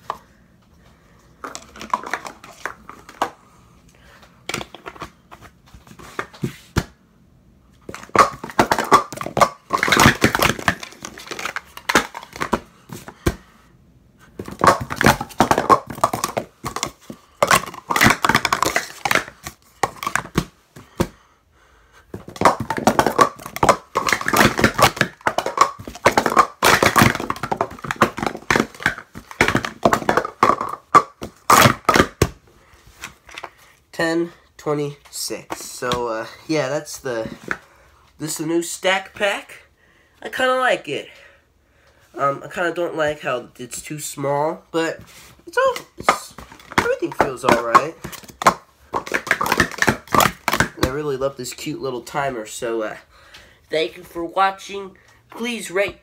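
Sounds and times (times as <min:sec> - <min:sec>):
plastic cups clattering: 0:01.4 - 0:03.4, 0:07.9 - 0:13.4, 0:14.4 - 0:21.2, 0:22.1 - 0:32.3, 0:45.6 - 0:51.0.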